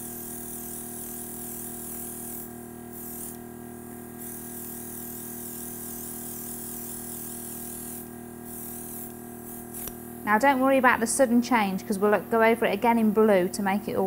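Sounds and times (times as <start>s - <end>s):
airbrush hissing: 0.0s - 10.4s
compressor humming: 0.0s - 14.0s.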